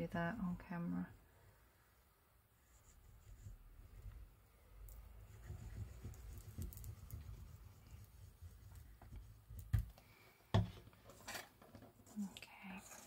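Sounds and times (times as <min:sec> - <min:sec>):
paper rustling and rubbing: 0:05.3 - 0:09.7.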